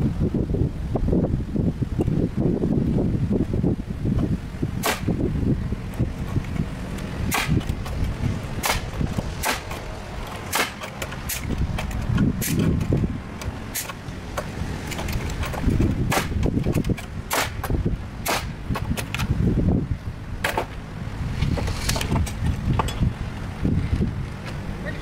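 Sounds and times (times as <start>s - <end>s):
nail gun firing: 4.8s - 5.2s, 7.3s - 8.0s, 8.6s - 9.8s, 10.5s - 12.9s, 16.1s - 19.2s.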